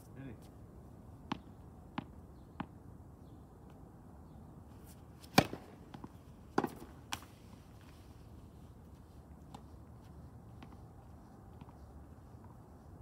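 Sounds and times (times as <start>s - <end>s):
tennis balls hit and bouncing: 1.2s - 2.8s, 4.8s - 8.0s, 9.3s - 12.6s.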